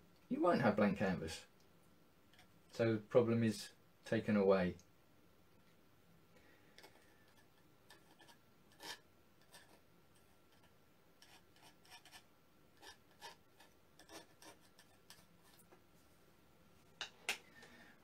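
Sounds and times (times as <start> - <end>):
palette knife scraping canvas: 7.9 - 9.8, 10.6 - 12.2, 12.8 - 15.6.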